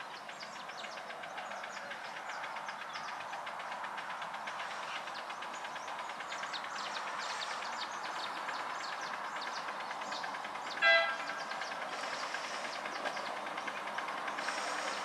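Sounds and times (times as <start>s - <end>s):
faint rapid ticking: 0.0s - 15.0s
steam locomotive hissing: 0.0s - 15.0s
steam whistle toot: 10.8s - 11.3s.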